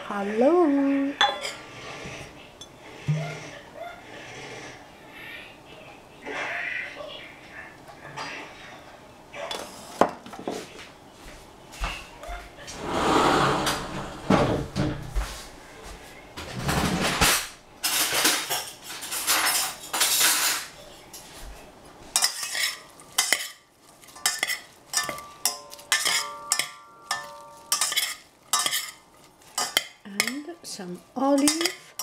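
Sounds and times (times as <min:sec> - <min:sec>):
vegetables rustling in saucepan: 0:17.8 - 0:32.0
fork clinking against pot: 0:22.2 - 0:23.6, 0:24.2 - 0:30.5, 0:31.4 - 0:32.0.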